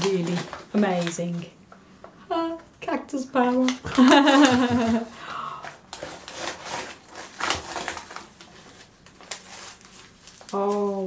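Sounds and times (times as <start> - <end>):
paper rustling and crinkling: 0.0 - 1.5, 3.4 - 5.1, 5.9 - 11.0.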